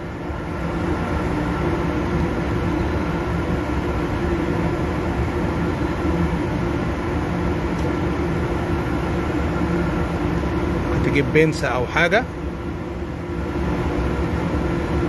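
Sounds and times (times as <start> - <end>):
machinery drone: 0.0 - 15.0.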